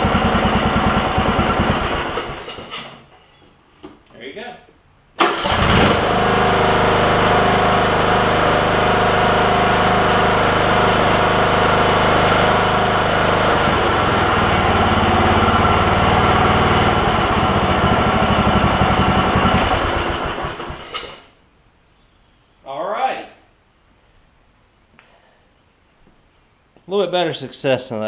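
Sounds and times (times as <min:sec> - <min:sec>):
mower engine running: 0:00.0 - 0:02.8, 0:05.2 - 0:21.2.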